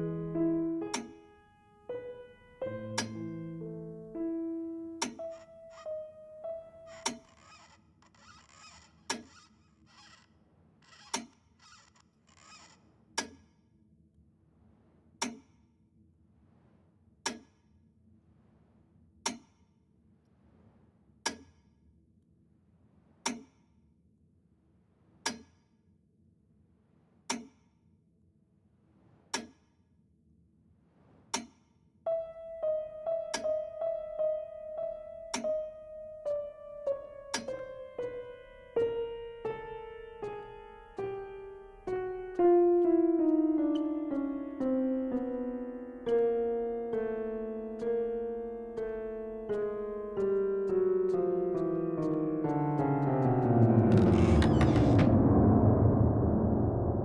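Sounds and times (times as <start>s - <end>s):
piano: 0.0s - 9.4s, 32.1s - 57.0s
metronome ticking: 36.3s - 53.6s.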